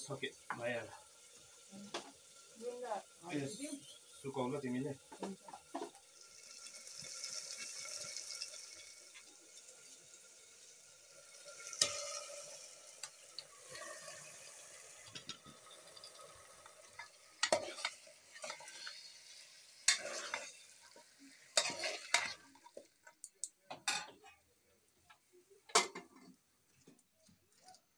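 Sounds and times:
sizzling hiss: 0.0s - 23.5s
metal ladle knocking and scraping pot: 17.0s - 19.0s, 21.6s - 22.4s.

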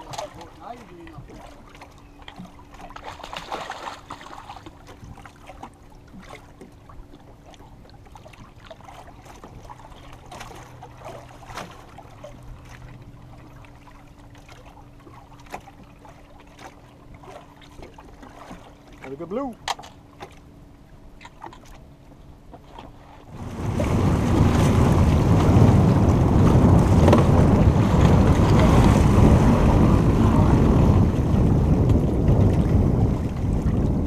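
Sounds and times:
water rush: 0.0s - 6.7s, 22.9s - 34.0s
water lapping against boat hull: 0.0s - 34.0s.

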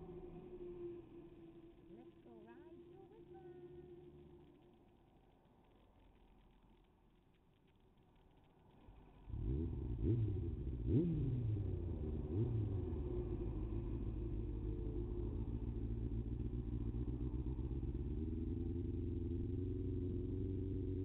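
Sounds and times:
motorcycle engine accelerating: 8.4s - 21.0s.

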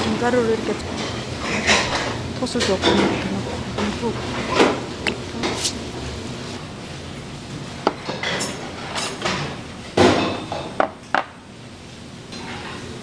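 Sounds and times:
utensils clinking against dishes: 0.6s - 4.8s, 8.0s - 11.2s, 12.3s - 13.0s.

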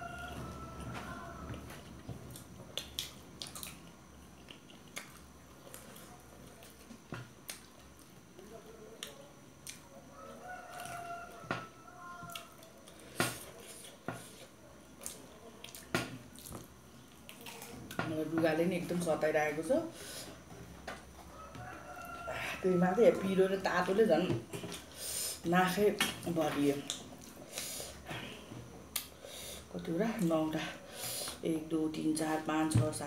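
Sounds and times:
distant rooster crowing: 0.0s - 1.9s, 10.1s - 13.4s, 21.2s - 24.4s.

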